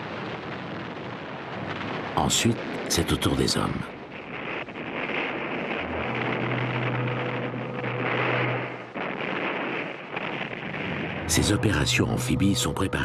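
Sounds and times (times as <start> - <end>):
rushing noise: 5.5 - 9.8, 10.8 - 13.0.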